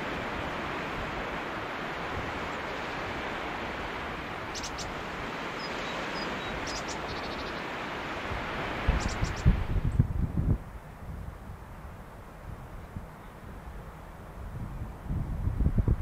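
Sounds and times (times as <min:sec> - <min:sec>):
sea surf washing on shore: 0:00.0 - 0:16.0
wind buffeting microphone: 0:08.1 - 0:16.0.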